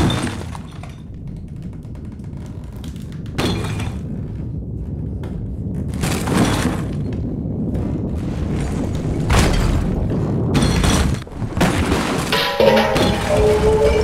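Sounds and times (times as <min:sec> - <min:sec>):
deep rumble: 0:00.1 - 0:14.0
held musical tones: 0:12.4 - 0:14.0.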